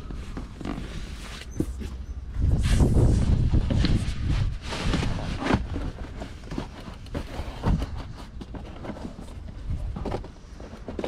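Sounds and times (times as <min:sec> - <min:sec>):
rubber mat scraping on carpet: 0:02.5 - 0:08.3.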